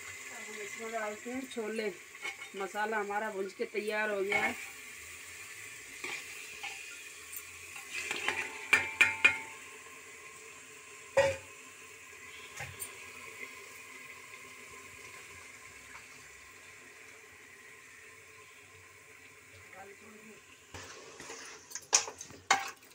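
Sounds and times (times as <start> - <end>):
faint sizzle: 0.0 - 22.9
metal utensils clanking on bowl: 6.0 - 9.5.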